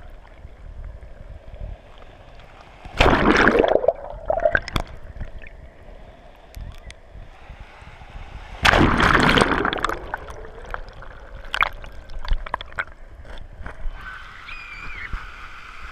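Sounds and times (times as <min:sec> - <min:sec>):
low steady rumble: 0:00.0 - 0:14.0
underwater rush of water: 0:01.6 - 0:05.7, 0:07.4 - 0:13.0
bubbles popping underwater: 0:03.0 - 0:05.5, 0:08.8 - 0:12.9.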